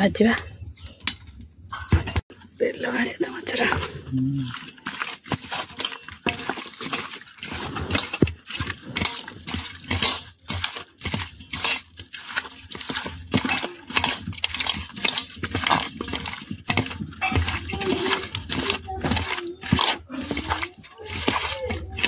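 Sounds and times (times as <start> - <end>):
wet squelches of hand mixing: 2.8 - 22.0
bangles clinking on metal bowl: 4.5 - 22.0.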